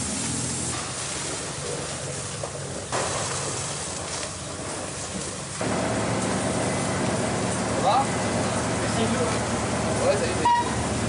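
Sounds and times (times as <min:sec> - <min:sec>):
low motor hum: 0:00.0 - 0:11.0
rushing noise of burning building: 0:00.0 - 0:11.0.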